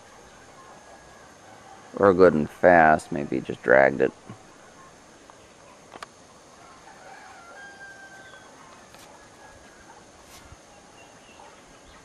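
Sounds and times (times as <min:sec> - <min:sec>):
steady outdoor hiss: 0:00.0 - 0:12.0
rooster crowing: 0:00.4 - 0:02.1, 0:06.5 - 0:10.1.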